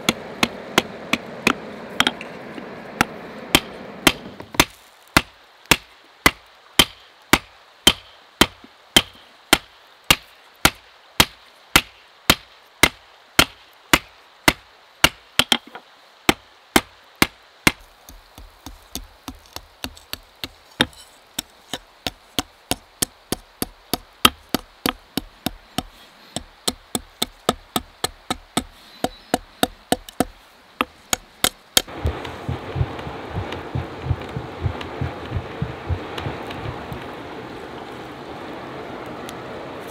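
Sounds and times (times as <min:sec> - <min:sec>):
forge rushing noise: 0:31.9 - 0:39.8.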